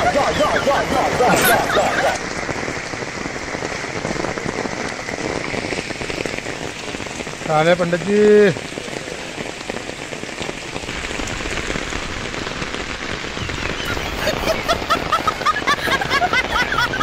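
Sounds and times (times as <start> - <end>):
heavy rain on puddles and concrete: 0.0 - 17.0.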